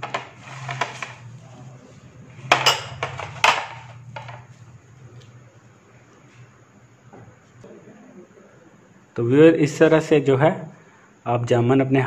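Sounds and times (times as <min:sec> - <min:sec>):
steady low hum: 0:00.0 - 0:12.0
bowl and knife clattering on tray: 0:02.4 - 0:04.4.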